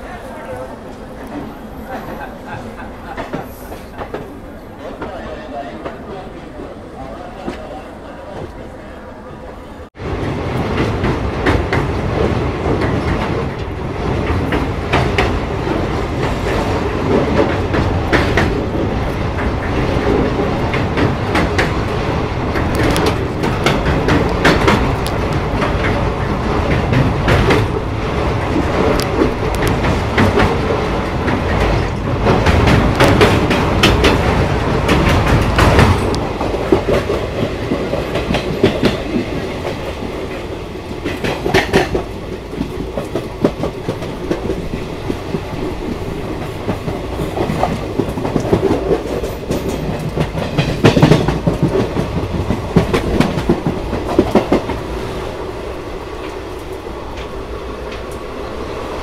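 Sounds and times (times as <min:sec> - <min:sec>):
train rumbling at speed: 0:00.0 - 0:59.0.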